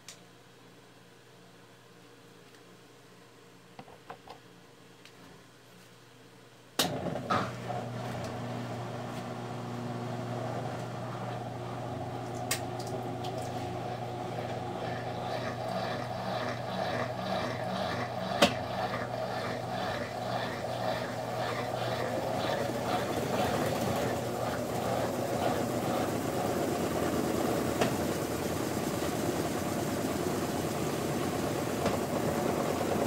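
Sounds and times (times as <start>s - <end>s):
washing machine spinning: 6.8s - 33.0s.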